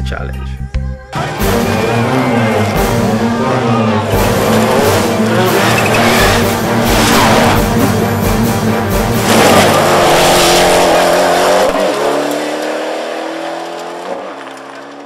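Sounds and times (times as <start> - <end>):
music: 0.0 - 11.8
rally car engine at high revs: 1.2 - 8.0, 9.1 - 15.0.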